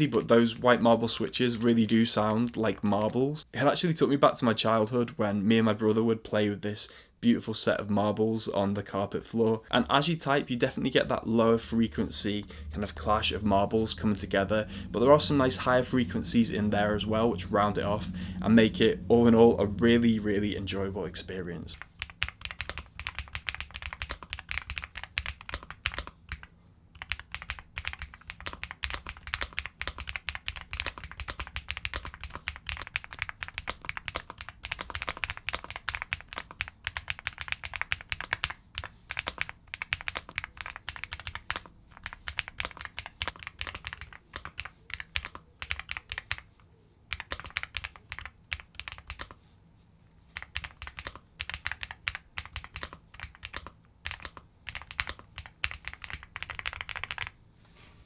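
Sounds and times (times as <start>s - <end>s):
mechanical keyboard typing: 21.8s - 46.5s, 47.1s - 49.4s, 50.3s - 57.4s.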